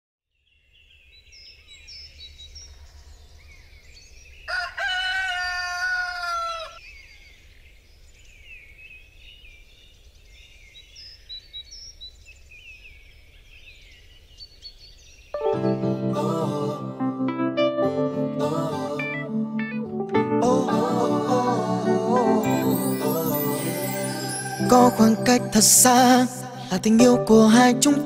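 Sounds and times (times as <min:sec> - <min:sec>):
small birds chirping: 0:00.4 - 0:04.8, 0:06.2 - 0:15.4
rooster crowing: 0:04.5 - 0:06.8.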